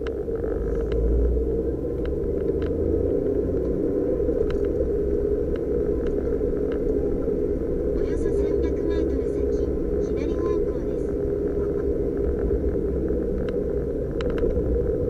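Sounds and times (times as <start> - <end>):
light ticks: 0.0 - 1.1, 2.0 - 3.8, 13.2 - 14.6
car engine and tyres rumbling: 0.0 - 15.0.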